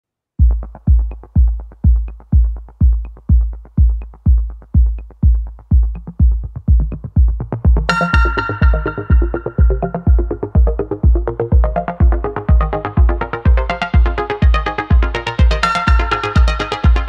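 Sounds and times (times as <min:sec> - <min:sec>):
deep kick drum: 0:00.4 - 0:17.0
synthesizer melody: 0:06.0 - 0:17.0.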